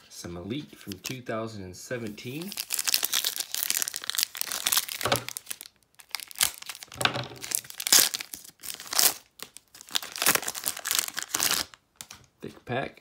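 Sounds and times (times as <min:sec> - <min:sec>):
foil wrapper crinkling and tearing: 0:02.2 - 0:11.8.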